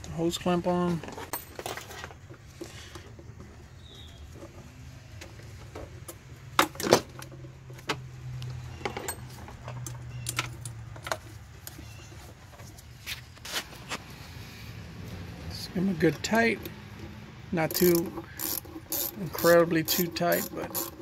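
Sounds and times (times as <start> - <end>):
metal hose clamp clinks: 8.8 - 11.3, 17.6 - 21.0.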